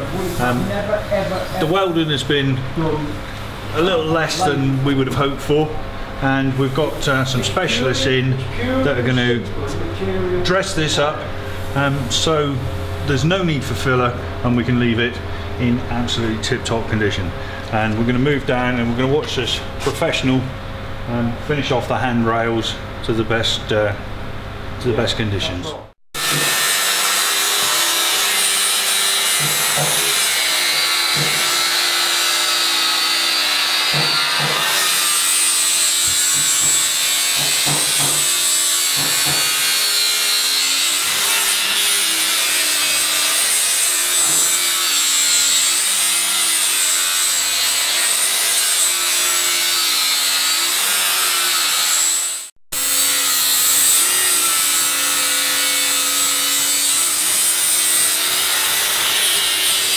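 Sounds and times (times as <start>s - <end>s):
angle grinder grinding steel: 26.2s - 59.9s.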